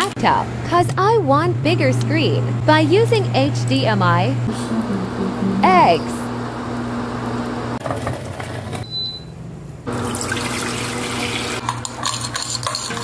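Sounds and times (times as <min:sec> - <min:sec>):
water running into sink: 0:09.9 - 0:11.6.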